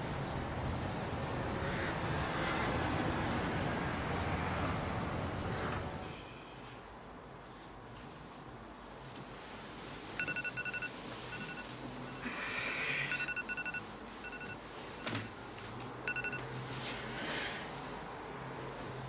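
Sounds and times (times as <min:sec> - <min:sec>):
bedding rustling: 0:07.4 - 0:12.2, 0:13.2 - 0:19.0
telephone ringing trill: 0:10.2 - 0:12.3, 0:13.0 - 0:15.3, 0:16.1 - 0:16.5.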